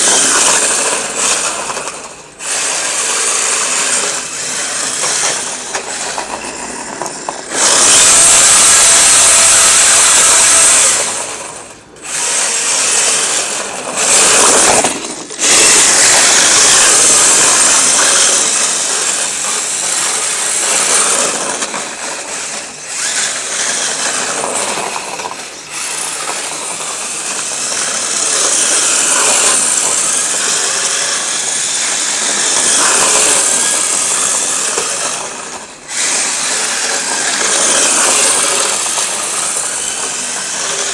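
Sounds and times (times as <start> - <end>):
rc car motor whirring: 0.0 - 40.9.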